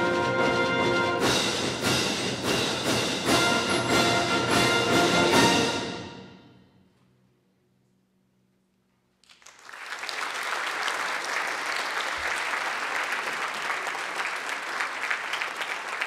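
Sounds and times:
audience applause: 9.2s - 16.0s.

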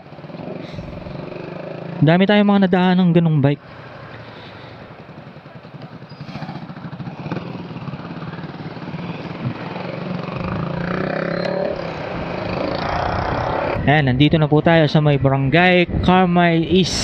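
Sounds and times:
scooter engine running: 0.0s - 2.1s, 3.7s - 13.8s.

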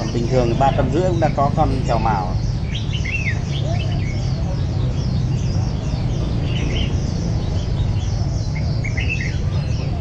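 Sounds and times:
birds chirping: 0.0s - 10.0s.

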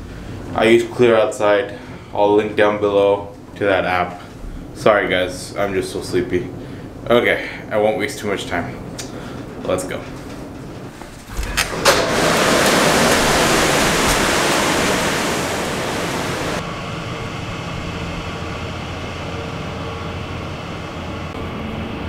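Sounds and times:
city hum: 8.8s - 22.0s
loud rush of air: 10.9s - 18.4s.

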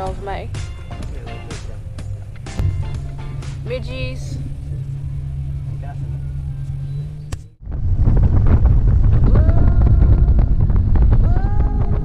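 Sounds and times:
music with gliding notes: 0.0s - 7.2s
steady low hum: 0.0s - 12.0s
motorboat engine at speed: 1.5s - 12.0s
wind on microphone: 7.6s - 12.0s.

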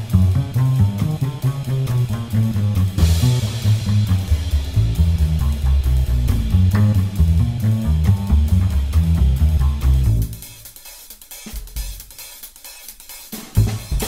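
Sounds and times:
bass guitar line: 0.0s - 10.4s, 13.6s - 14.0s
drum kit: 0.0s - 14.0s
cymbal crash: 1.6s - 12.0s.

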